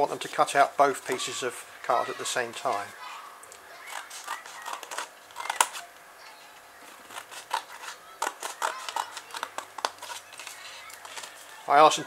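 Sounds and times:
scissors cutting card: 3.8s - 5.9s, 6.8s - 11.4s.

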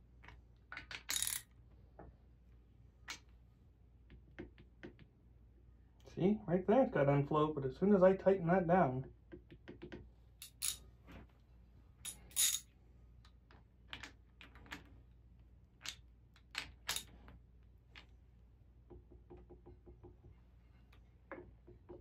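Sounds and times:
metal tools clinking: 10.4s - 10.8s, 12.0s - 12.7s.

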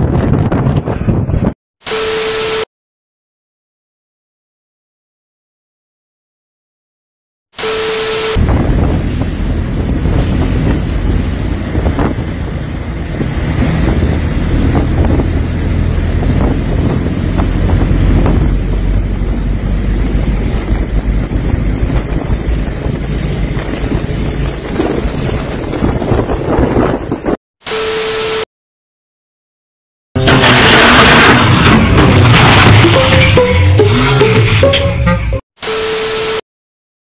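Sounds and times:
wind buffeting microphone: 0.0s - 1.5s, 8.4s - 27.4s
vehicle rumbling on wet road: 8.4s - 27.2s.

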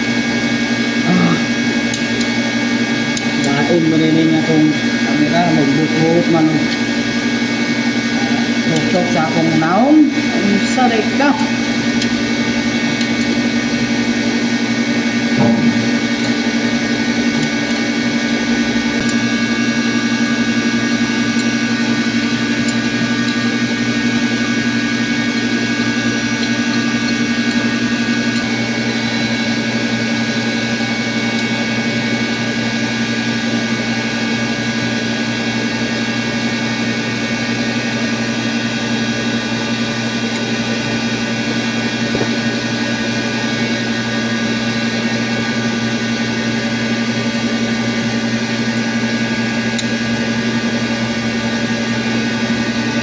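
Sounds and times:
electric pump motors droning: 0.0s - 53.0s
short knock: 15.4s - 15.9s.

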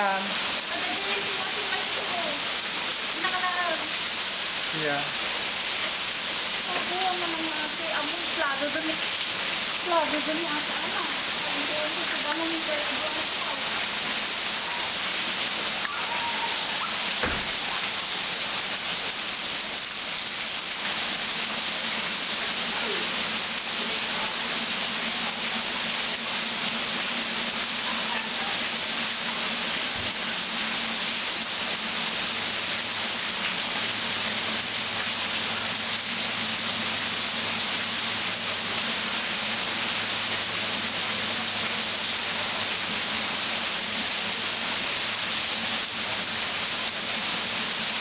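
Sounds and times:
heavy rain into floodwater: 0.0s - 48.0s
knock: 17.2s - 17.5s.

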